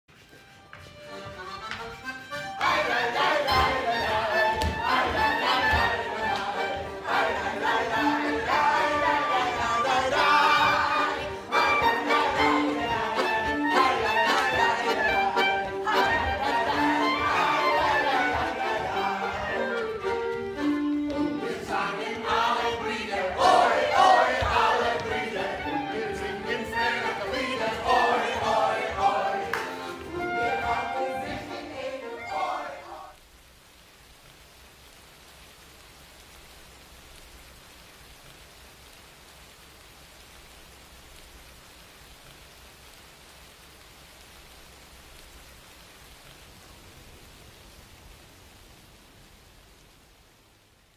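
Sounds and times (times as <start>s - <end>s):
band playing lively dance tune: 0.4s - 32.8s
singing over instruments: 2.6s - 20.2s, 21.2s - 33.2s.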